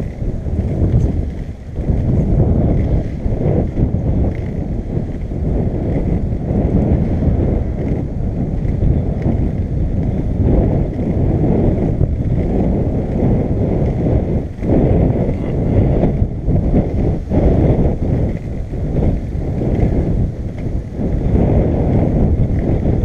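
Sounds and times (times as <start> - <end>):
skateboard wheels rolling on bricks: 0.0 - 23.0
wind buffeting microphone: 0.0 - 23.0.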